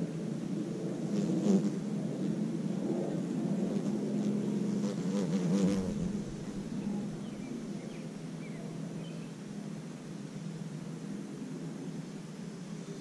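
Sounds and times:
wasp buzzing in flight: 1.0 - 2.5, 3.5 - 7.8.

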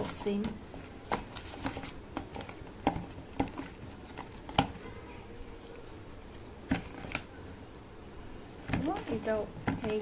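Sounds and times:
hands rubbing fish heads in a tub: 0.0 - 4.5.

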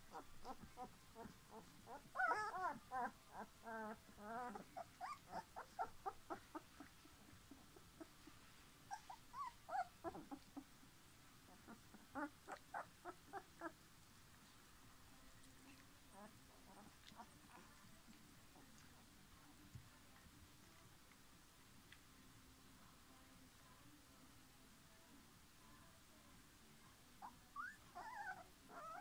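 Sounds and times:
puppies whimpering and squeaking: 0.1 - 10.6, 27.2 - 29.0.

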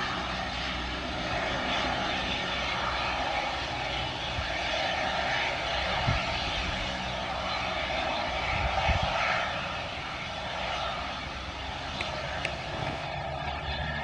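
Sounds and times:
helicopter engines and rotor: 0.0 - 14.0.

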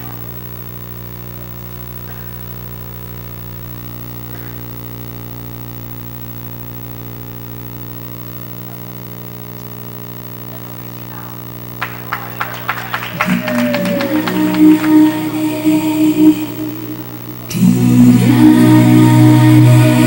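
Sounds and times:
mains hum: 0.0 - 20.0.

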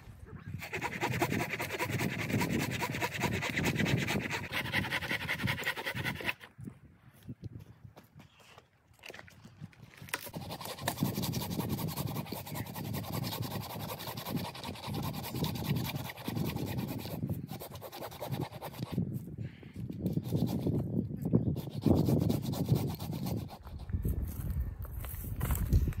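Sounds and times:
hand saw rasping through wood: 0.6 - 6.5, 10.2 - 19.0, 20.0 - 20.8, 21.6 - 24.0.

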